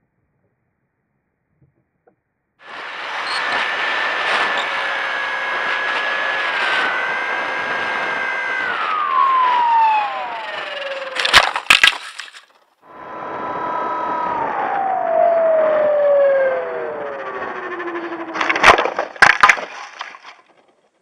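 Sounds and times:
wind rush: 2.6 - 11.4, 12.9 - 18.8
electric motor and propeller whining: 2.6 - 21.0
plane crashing into grass: 10.2 - 12.5, 18.3 - 20.4.

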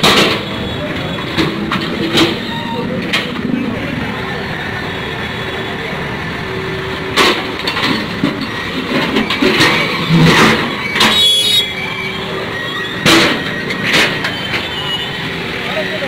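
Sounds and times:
diesel engine running: 0.0 - 16.0
bucket crashing and scraping concrete: 7.2 - 11.3.

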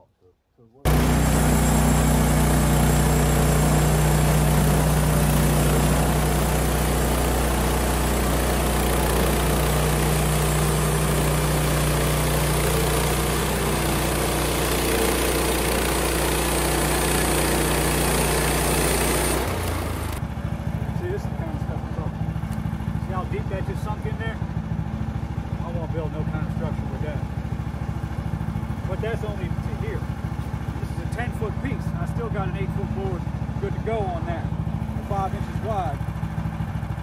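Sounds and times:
band blade cutting timber: 0.9 - 20.2
bandsaw mill engine running: 0.9 - 37.0.

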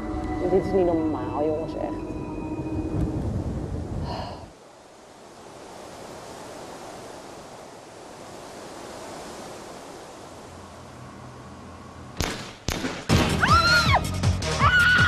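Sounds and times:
wind buffeting microphone: 0.4 - 10.6.

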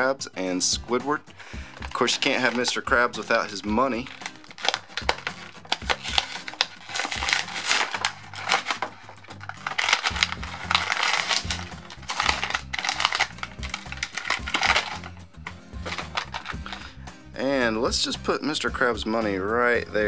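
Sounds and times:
background music with bass line: 0.0 - 20.0
plastic bags crinkling: 1.7 - 2.9, 3.5 - 15.2, 15.8 - 17.0.

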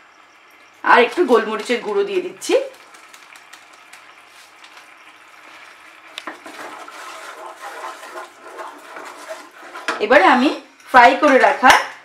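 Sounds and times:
sauce simmering and bubbling: 2.6 - 10.0
spatula stirring and scraping: 2.7 - 10.4.

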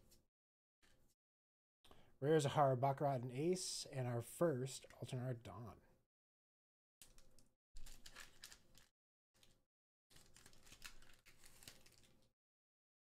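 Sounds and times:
foil wrapper tearing and crinkling: 7.8 - 12.3.

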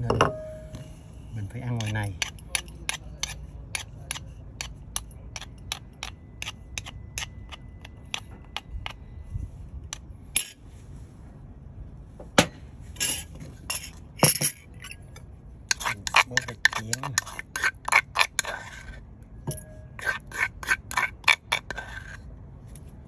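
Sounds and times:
metal spoon scraping mortar: 0.8 - 9.0, 13.0 - 19.0, 19.6 - 22.3.

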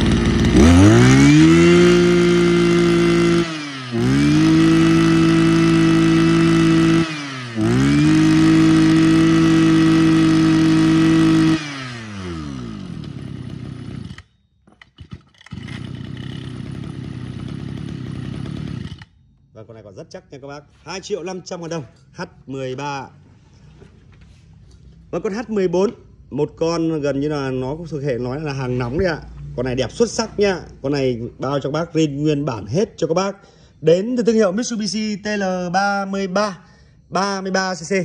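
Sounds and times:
brush cutter engine revving: 0.0 - 19.2.

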